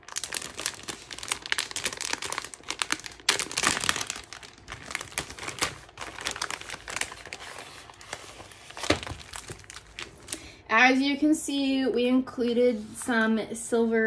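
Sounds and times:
plastic pouch tearing open: 0:00.0 - 0:10.4
plastic film crinkling: 0:00.0 - 0:10.5.

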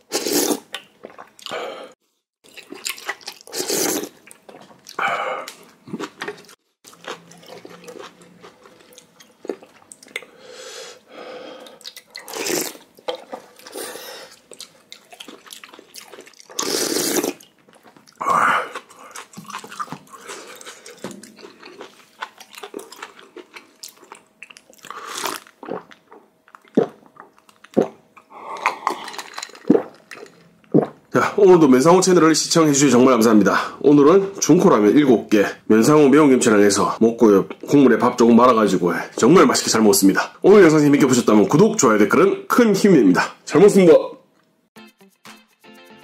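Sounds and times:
slurping broth: 0:00.1 - 0:01.3, 0:03.4 - 0:04.2, 0:11.8 - 0:14.4, 0:16.5 - 0:17.4
chewing: 0:02.5 - 0:10.3, 0:11.6 - 0:30.4.

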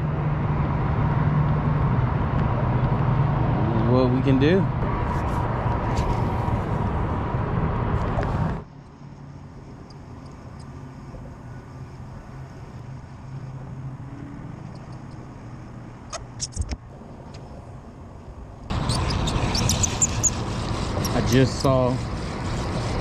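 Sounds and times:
microphone rumble and rustle: 0:04.8 - 0:08.6
trolling motor hum: 0:18.7 - 0:23.0.

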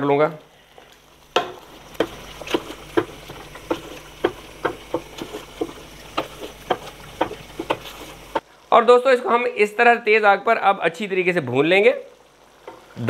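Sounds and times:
spoon stirring wet stew: 0:01.5 - 0:08.4.

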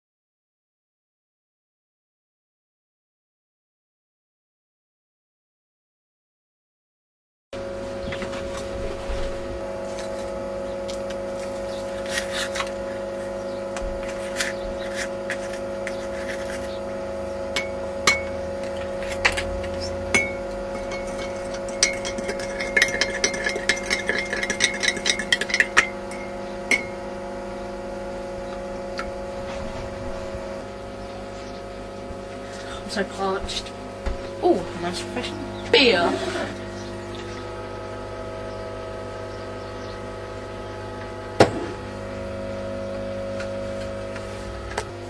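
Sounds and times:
steady hum: 0:07.6 - 0:45.0
glassware clinking: 0:20.1 - 0:27.0.

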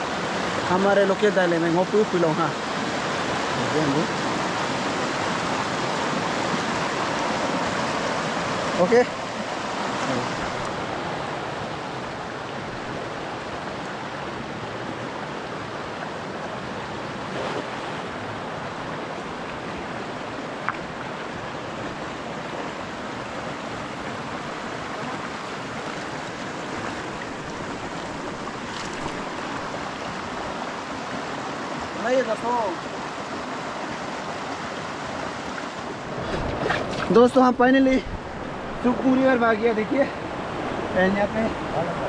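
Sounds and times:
river rushing over stones: 0:00.0 - 0:42.0.

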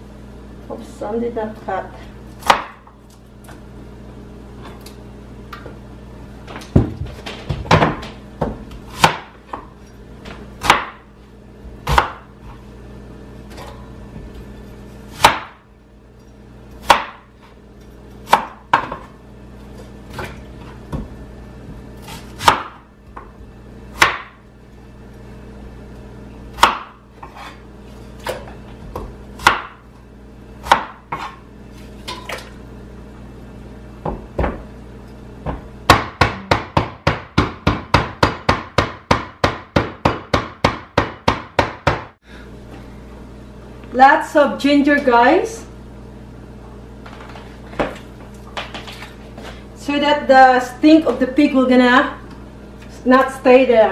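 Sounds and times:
knife chopping on plastic board: 0:06.8 - 0:09.7, 0:10.6 - 0:11.0, 0:11.8 - 0:12.3, 0:15.2 - 0:15.6, 0:16.8 - 0:17.3, 0:22.0 - 0:23.3, 0:24.0 - 0:24.4, 0:26.6 - 0:27.5, 0:30.6 - 0:31.4, 0:35.4 - 0:42.1.

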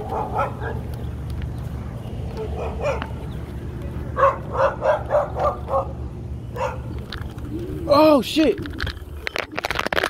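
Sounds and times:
dog barking: 0:00.0 - 0:00.9, 0:02.4 - 0:03.2, 0:04.2 - 0:06.9.

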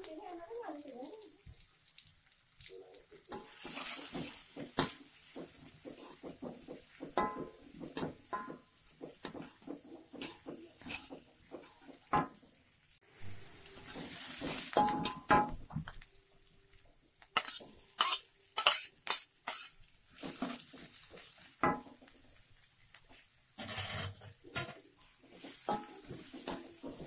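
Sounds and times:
brief hiss of frying: 0:00.9 - 0:06.2, 0:13.0 - 0:16.2.

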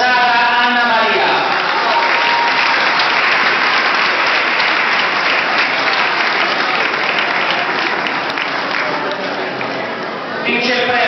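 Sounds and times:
audience applauding: 0:01.2 - 0:10.0.

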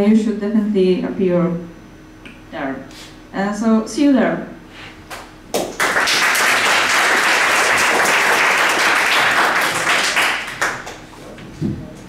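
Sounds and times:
audience applauding: 0:05.5 - 0:11.1.

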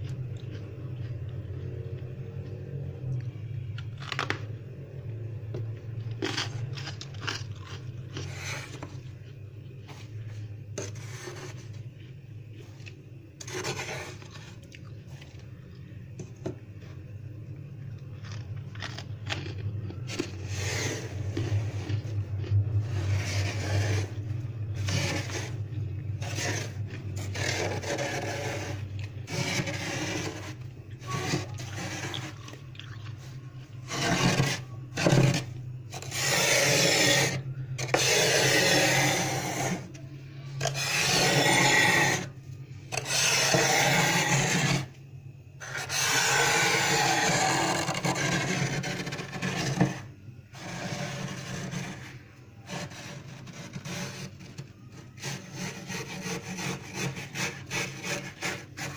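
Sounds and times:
metal tool scraping frost: 0:13.4 - 0:14.3, 0:20.4 - 0:21.7, 0:22.9 - 0:24.2, 0:24.8 - 0:25.6, 0:26.2 - 0:32.4, 0:33.9 - 0:39.9, 0:40.6 - 0:42.3, 0:42.9 - 0:44.9, 0:45.6 - 0:50.0.

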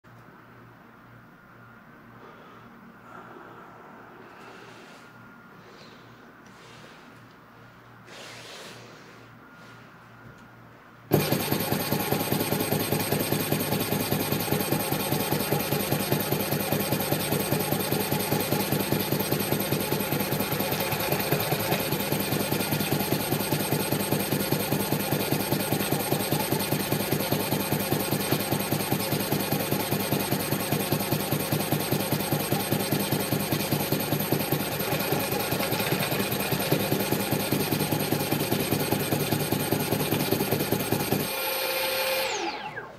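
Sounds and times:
motor clicking buzz: 0:11.1 - 0:42.9.

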